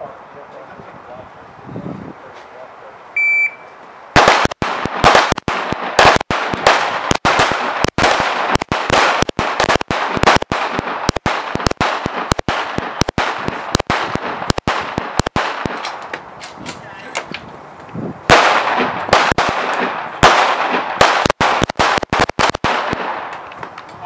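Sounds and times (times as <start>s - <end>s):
rapid pistol shots with echo: 4.2s - 16.0s, 18.3s - 23.3s.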